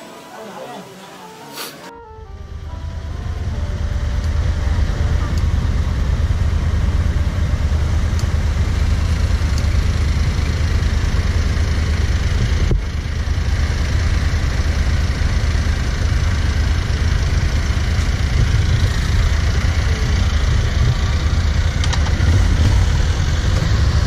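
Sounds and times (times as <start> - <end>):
motorcycle engine running: 2.2 - 24.0
wind rumble on microphone: 18.1 - 24.0.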